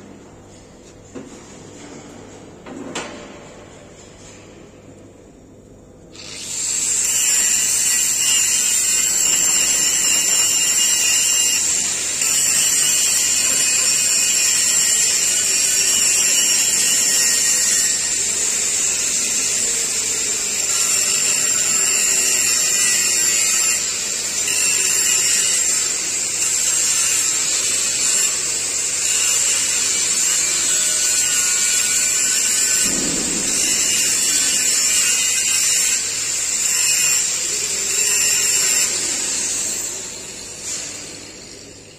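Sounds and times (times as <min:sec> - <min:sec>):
power grinder grinding steel pipe: 0:06.2 - 0:41.6.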